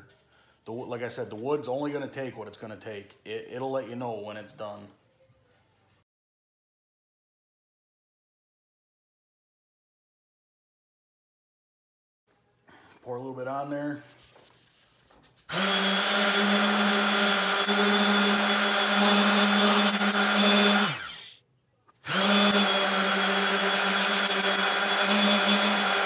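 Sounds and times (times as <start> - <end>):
orbital sander motor whine: 15.5 - 21.4, 22.0 - 26.0.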